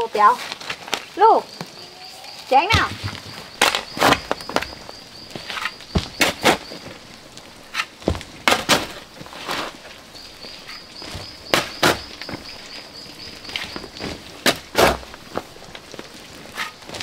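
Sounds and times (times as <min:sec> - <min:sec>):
shovel scraping soil and gravel: 0:02.1 - 0:06.8, 0:07.6 - 0:09.9, 0:11.5 - 0:12.2, 0:13.6 - 0:15.2, 0:16.5 - 0:17.0.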